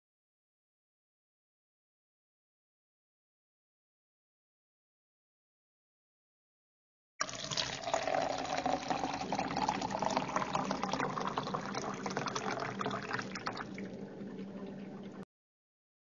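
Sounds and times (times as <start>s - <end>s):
water pouring into a glass: 7.2s - 15.2s.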